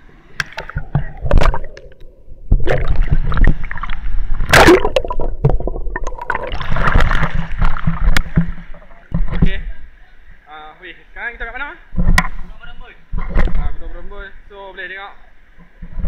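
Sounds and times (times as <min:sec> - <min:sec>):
water sloshing and splashing: 0:00.4 - 0:09.6.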